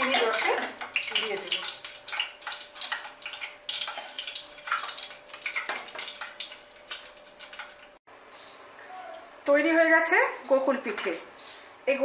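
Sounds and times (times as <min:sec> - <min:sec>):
oil sizzling and crackling: 0:00.0 - 0:08.0.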